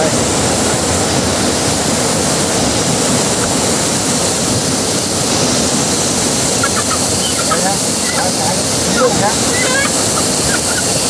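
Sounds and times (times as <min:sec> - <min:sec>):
mountain stream rushing: 0:00.0 - 0:11.0
faint voices: 0:06.6 - 0:11.0.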